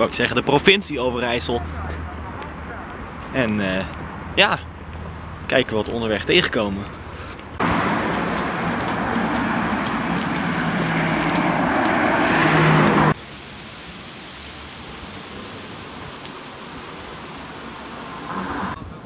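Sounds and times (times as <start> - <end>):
passing car: 6.9 - 13.2, 17.5 - 18.8.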